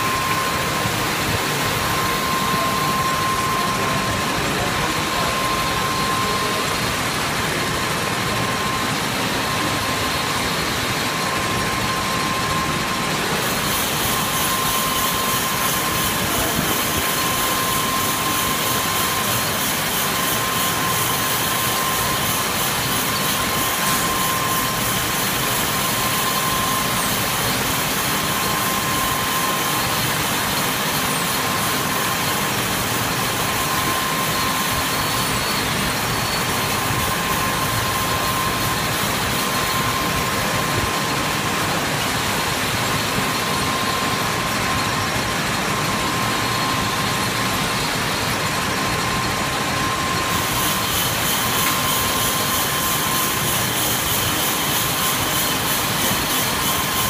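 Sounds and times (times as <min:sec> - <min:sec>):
lathe cutting metal: 0:00.0 - 0:57.0
thin whine: 0:00.0 - 0:57.0.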